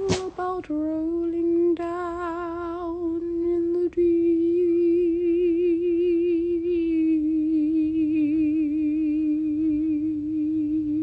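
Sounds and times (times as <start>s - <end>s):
woman singing unaccompanied: 0.0s - 11.0s.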